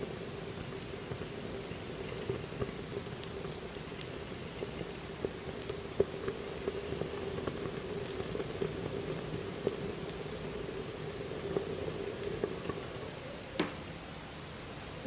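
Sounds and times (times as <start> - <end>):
paper and cloth burning crackling: 0.0 - 15.0
sharp pop of fire: 13.6 - 13.9.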